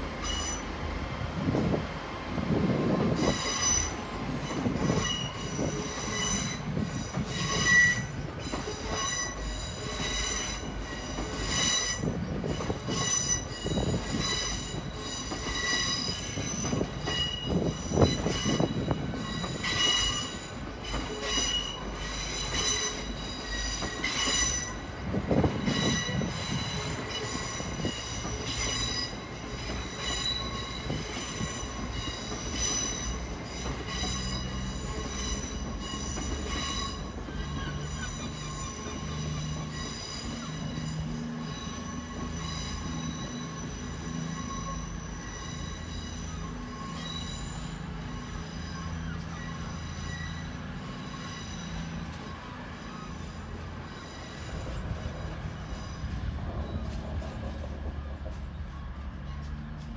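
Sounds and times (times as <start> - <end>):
train wheels squealing: 0.0 - 59.9.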